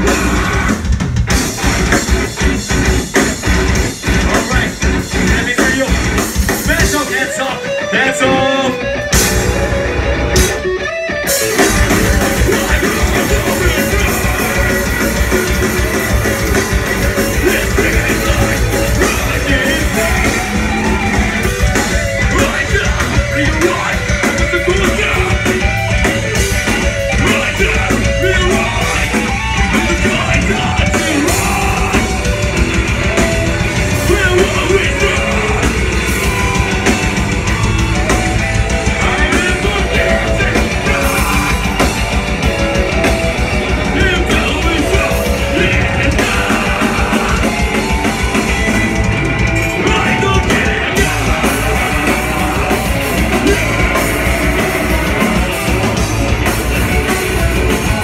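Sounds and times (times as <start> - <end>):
distorted electric guitars: 0.0 - 58.0
fast drumming: 0.0 - 58.0
person singing into a microphone: 12.1 - 21.6, 27.1 - 32.5, 34.0 - 36.6, 38.8 - 42.2, 43.8 - 48.2, 49.7 - 57.0.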